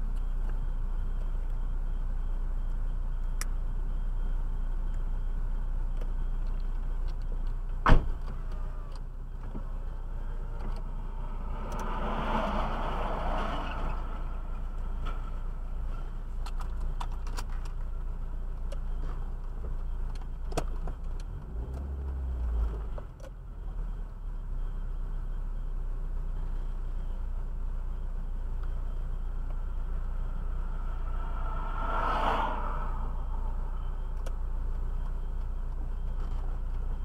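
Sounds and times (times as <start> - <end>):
car rumbling in motion: 0.0 - 37.0.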